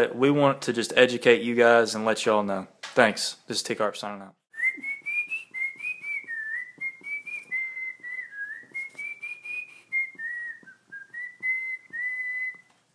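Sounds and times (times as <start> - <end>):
person whistling a tune: 4.5 - 12.7.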